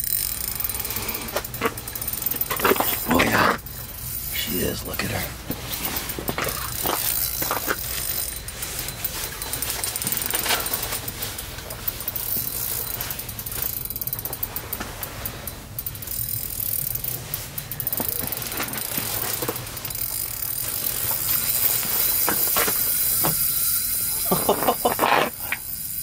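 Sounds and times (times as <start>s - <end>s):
fishing reel clicking rapidly: 0.0s - 26.0s.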